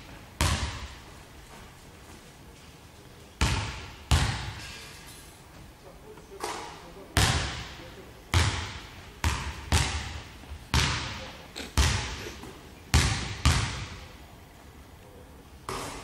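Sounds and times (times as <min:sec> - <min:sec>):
basketball bouncing on wooden floor: 0:00.4 - 0:01.0, 0:03.4 - 0:04.6, 0:08.4 - 0:11.2, 0:11.8 - 0:12.2, 0:12.9 - 0:14.0.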